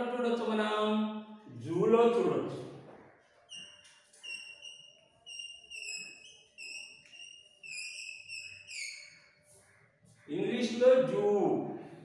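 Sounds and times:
chalk squeaking on blackboard: 3.1s - 10.3s.

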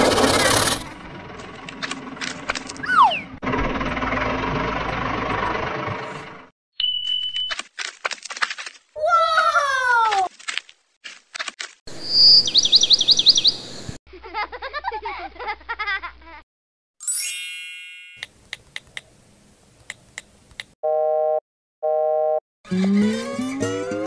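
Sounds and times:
bright ringing ding: 17.1s - 18.2s.

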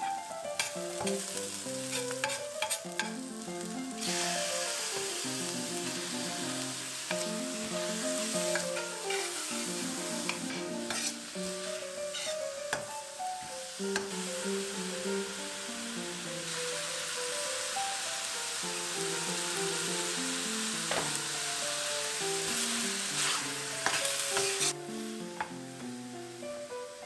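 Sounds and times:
light background music: 0.0s - 27.0s
vegetables sizzling in oil: 0.0s - 27.0s
metal spoon scraping pan: 0.6s - 1.2s, 1.8s - 3.2s, 8.4s - 11.2s, 12.1s - 12.9s, 23.2s - 24.8s.

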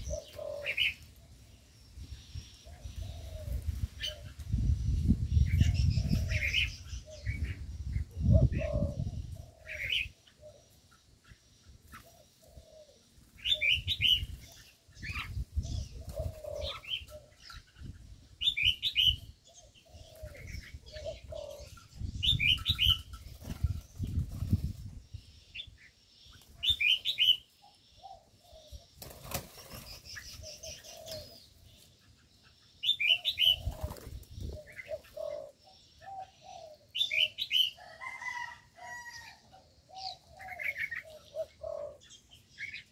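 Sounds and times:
low dove coos: 0.0s - 1.4s, 2.6s - 4.6s, 5.5s - 10.9s, 11.9s - 17.7s, 18.4s - 23.8s, 30.3s - 31.8s, 32.8s - 42.8s
bird chirping phrases: 0.0s - 38.4s.

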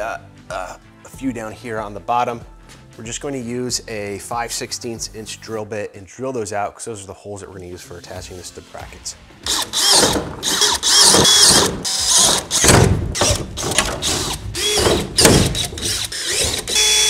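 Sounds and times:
cordless drill whining: 9.4s - 17.0s.

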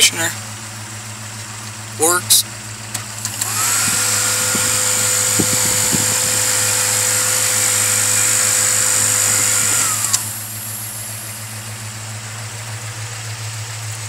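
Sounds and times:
blower fan whining: 3.2s - 12.0s.

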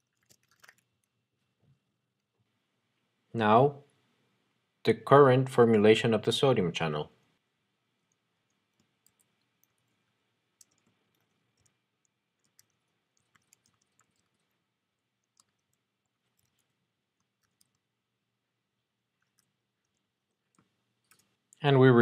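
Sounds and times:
keyboard clicks: 10.6s - 14.5s, 15.2s - 17.8s, 19.2s - 21.3s.

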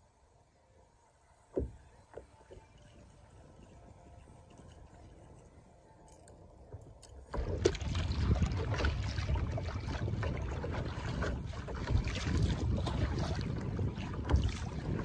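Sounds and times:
wind buffeting microphone: 6.5s - 15.0s
kayak paddle splashing water: 6.7s - 15.0s.

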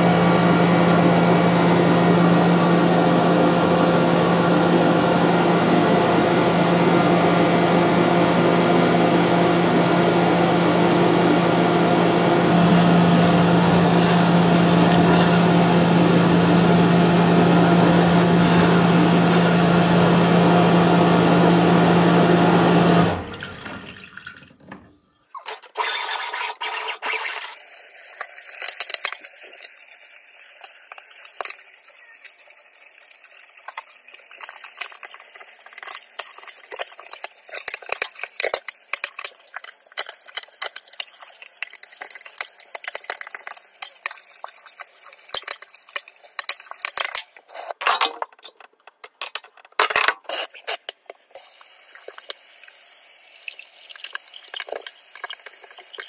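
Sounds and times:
drain washer machine noise: 0.0s - 27.8s
water trickling and dripping: 29.2s - 47.4s.

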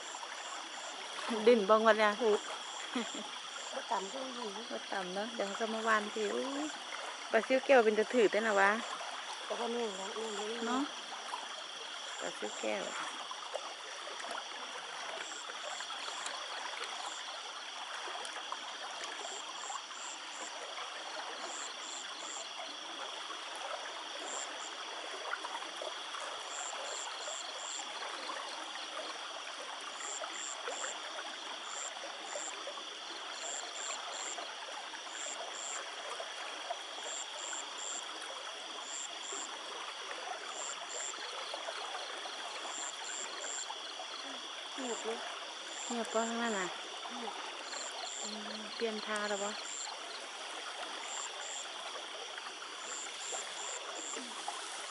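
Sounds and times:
water rushing from a pipe: 0.0s - 54.9s.

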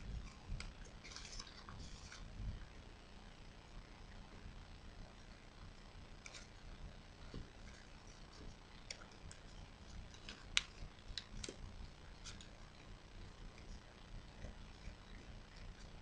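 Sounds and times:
paper crinkling while folded: 0.1s - 2.6s, 6.2s - 16.0s.

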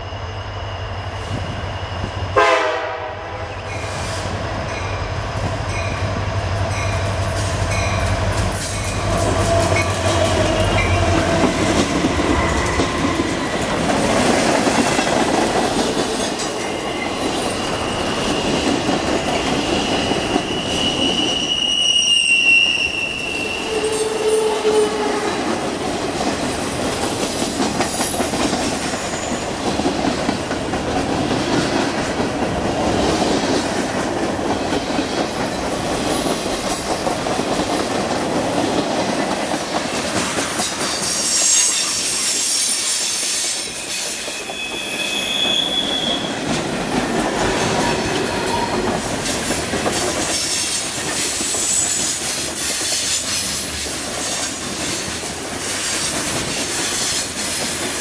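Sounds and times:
locomotive engines humming: 0.0s - 20.6s
high wheel squeal: 8.8s - 11.6s, 16.6s - 25.4s, 40.9s - 46.5s.

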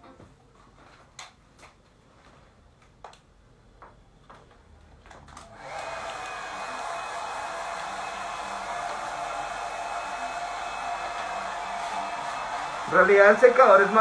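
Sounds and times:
hair dryer blowing: 5.4s - 14.0s.

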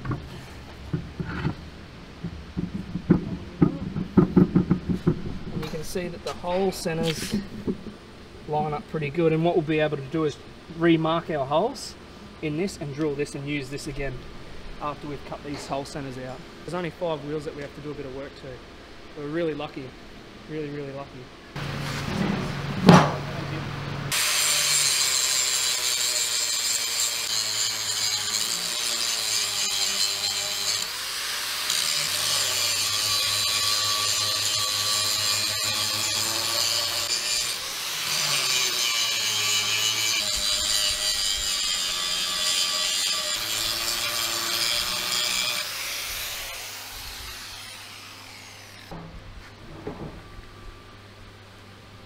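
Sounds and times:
angle grinder grinding steel: 24.1s - 48.9s.

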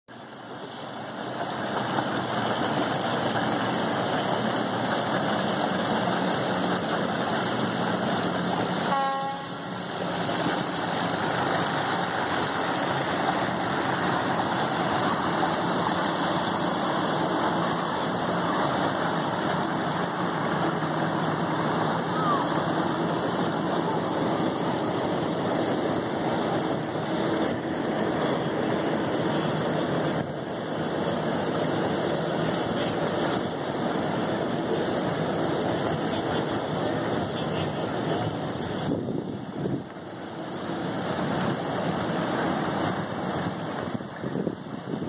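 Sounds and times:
boat wash on water: 0.1s - 45.0s
outboard motors running: 0.1s - 45.0s
short horn toot: 8.8s - 9.7s.

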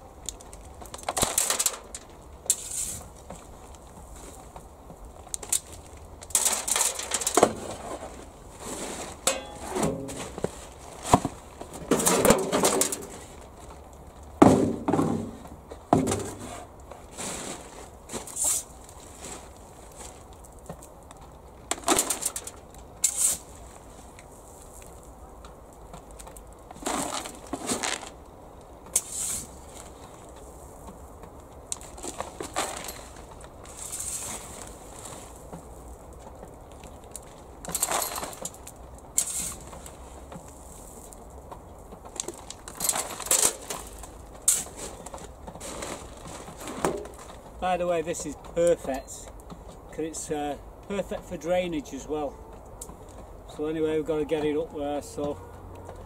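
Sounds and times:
shovel scraping compost: 1.0s - 3.2s, 5.6s - 13.5s, 14.4s - 20.2s, 21.8s - 25.0s, 26.7s - 28.2s, 28.9s - 30.6s, 31.8s - 36.0s, 37.8s - 41.2s, 42.2s - 49.2s.

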